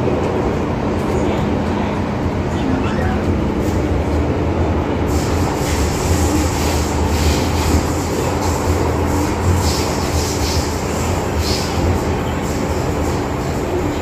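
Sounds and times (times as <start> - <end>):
hissing wheel and rail noise: 0.0 - 14.0
metro car rumbling in tunnel: 0.0 - 14.0.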